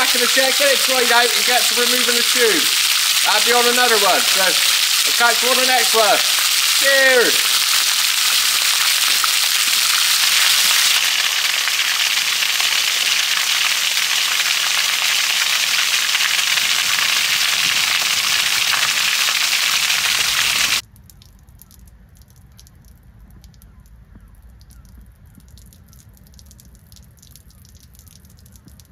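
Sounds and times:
water gushing with loud hiss: 0.0 - 20.8
water dripping: 0.0 - 28.9
water trickling into puddle: 0.0 - 28.9.

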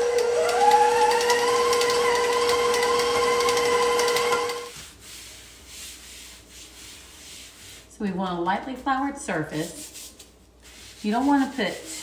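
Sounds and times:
beater clicking in dough: 0.0 - 4.7
stand mixer motor whining: 0.0 - 4.7.

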